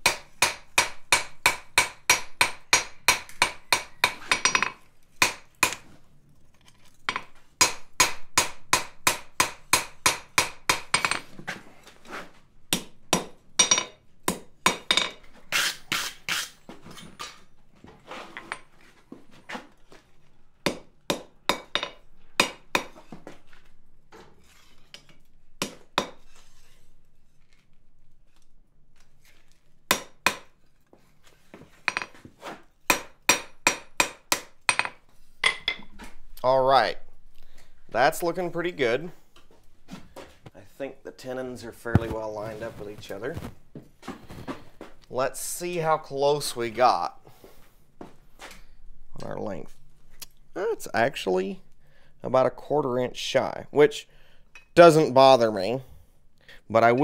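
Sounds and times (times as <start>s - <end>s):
hammer striking iron on anvil: 0.0s - 5.8s, 7.1s - 11.2s, 12.7s - 15.2s, 20.7s - 23.0s, 25.6s - 26.2s, 29.9s - 30.5s, 32.9s - 35.8s.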